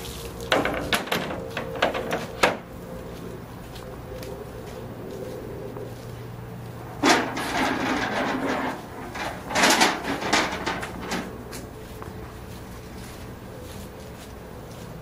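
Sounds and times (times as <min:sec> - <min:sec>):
bench scraping on concrete: 0:07.0 - 0:11.4.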